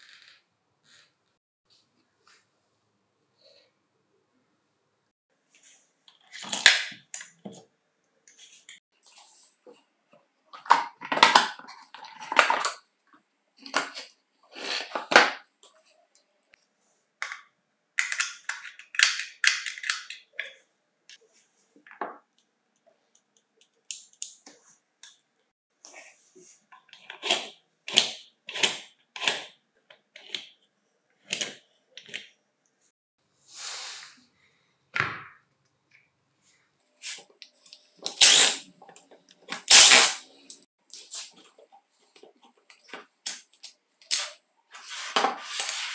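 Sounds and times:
plastic parts clicking and knocking: 10.5 - 12.9, 17.2 - 20.6.

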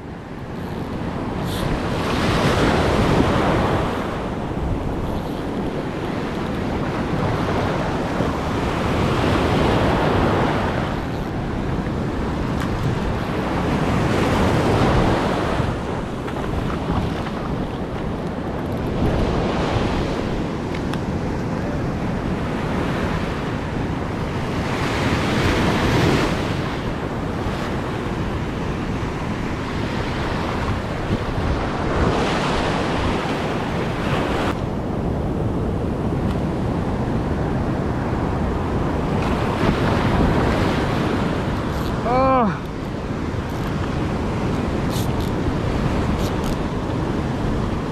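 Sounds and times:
ocean surf breaking: 0.0 - 47.9
wind buffeting microphone: 0.0 - 47.9.

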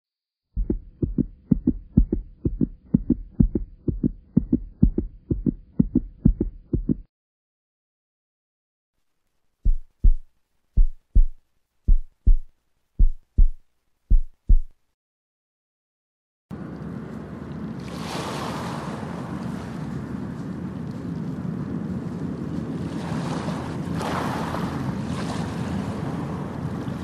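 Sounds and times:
heartbeat thumps: 0.5 - 7.1, 9.6 - 14.8.

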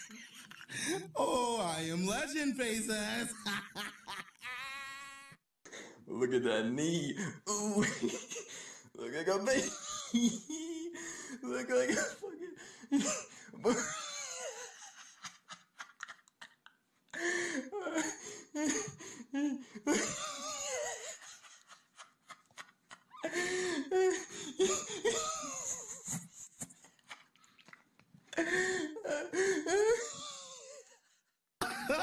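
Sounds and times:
hearty laughter: 0.0 - 1.2, 3.2 - 5.3, 9.5 - 11.1, 11.7 - 27.4, 28.4 - 32.0.

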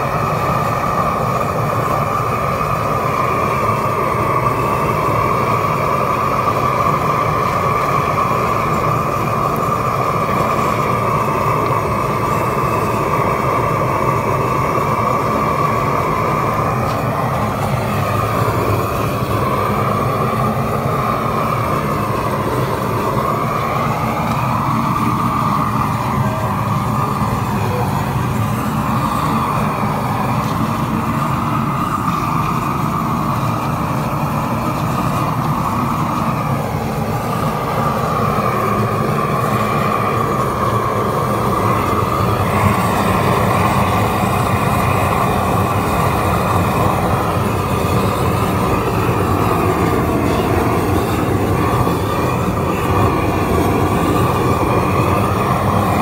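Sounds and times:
roofing torch flame rushing: 0.0 - 56.0.

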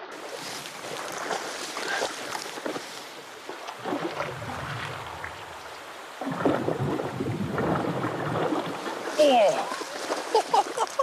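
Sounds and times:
person wading through river: 0.0 - 11.0
fish thrashing at water surface: 3.6 - 11.0.

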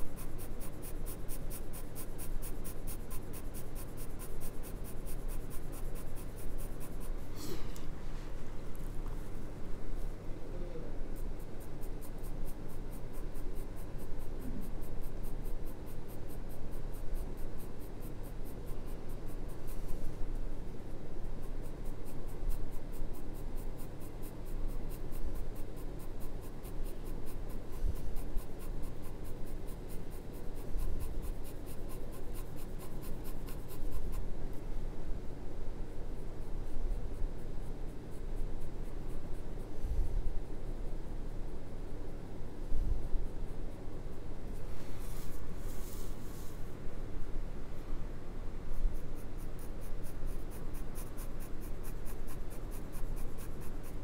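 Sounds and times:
pencil shading on paper: 0.0 - 7.6, 11.0 - 34.3, 48.8 - 54.0.

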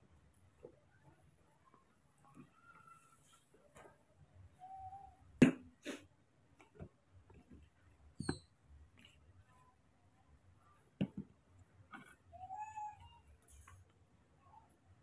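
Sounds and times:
faint squeak: 0.8 - 3.9, 4.5 - 5.2, 8.2 - 8.5.

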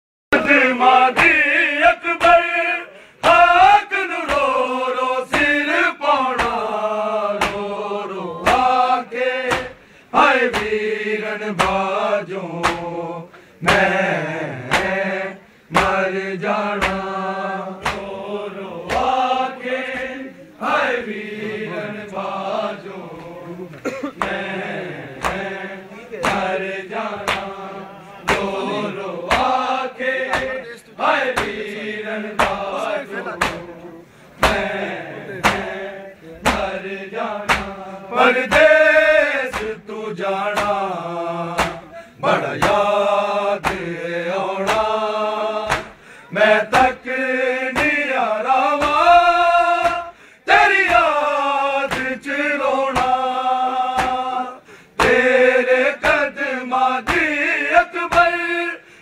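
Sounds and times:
men chanting a lament: 0.3 - 59.0
hand slaps on bare chests: 0.4 - 1.4, 2.2 - 2.4, 3.2 - 3.6, 4.2 - 4.6, 5.3 - 5.6, 6.3 - 6.7, 7.4 - 7.7, 8.4 - 8.8, 9.4 - 9.8, 10.4 - 10.8, 11.5 - 11.9, 12.6 - 12.9, 13.6 - 14.0, 14.6 - 15.0, 15.7 - 16.0, 16.7 - 17.1, 17.8 - 18.2, 18.8 - 19.2, 19.9 - 20.2, 24.2 - 24.5, 25.2 - 25.6, 26.2 - 27.6, 28.2 - 30.6, 31.3 - 31.7, 32.4 - 32.7, 33.4 - 33.7, 34.4 - 35.8, 36.4 - 37.8, 38.4 - 38.8, 39.4 - 39.8, 40.5 - 41.9, 42.6 - 42.9, 43.6 - 44.0, 44.6 - 45.0, 45.6 - 46.0, 46.7 - 47.0, 47.7 - 48.1, 48.7 - 49.2, 49.8 - 50.1, 50.7 - 51.2, 51.9 - 52.3, 52.9 - 53.3, 53.9 - 54.3, 55.0 - 55.3, 56.0 - 56.3, 57.0 - 57.3, 58.1 - 58.4.

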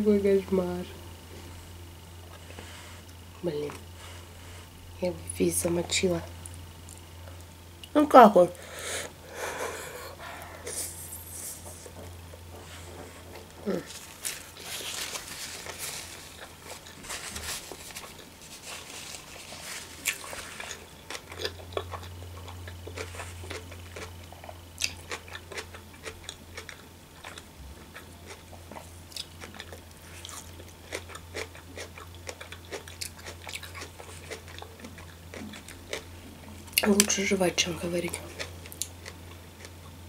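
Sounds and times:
person chewing wetly: 12.0 - 36.9, 38.2 - 40.0.

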